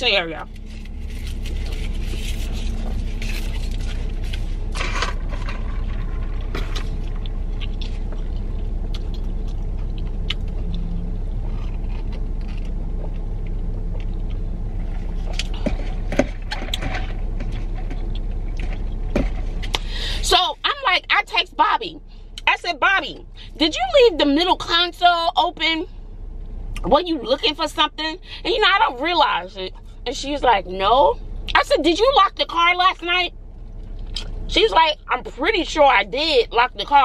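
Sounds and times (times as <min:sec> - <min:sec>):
car engine idling: 0:00.0 - 0:37.0
paper wrapper crinkling: 0:00.5 - 0:05.4.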